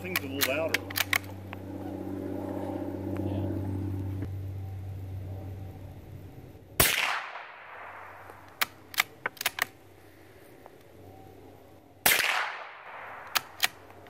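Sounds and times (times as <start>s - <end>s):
rifle bolt clicks: 0.0s - 1.3s, 8.4s - 9.8s, 13.2s - 14.0s
steady low hum: 0.0s - 14.0s
rifle shot with echo: 6.8s - 9.2s, 12.0s - 13.9s.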